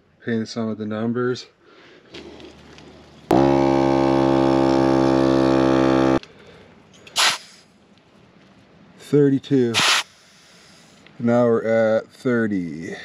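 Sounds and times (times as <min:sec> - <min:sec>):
air compressor running: 0:03.3 - 0:06.2, 0:07.2 - 0:07.6, 0:09.8 - 0:10.2
hiss of air: 0:07.2 - 0:07.7, 0:09.7 - 0:11.0.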